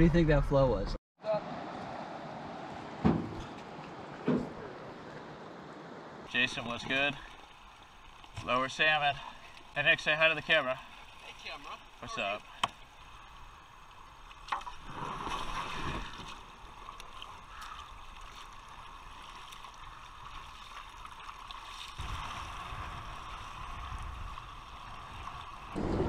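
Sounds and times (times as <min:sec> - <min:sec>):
river water rushing and splashing: 0:01.2 - 0:25.8
wind buffeting microphone: 0:22.0 - 0:26.0.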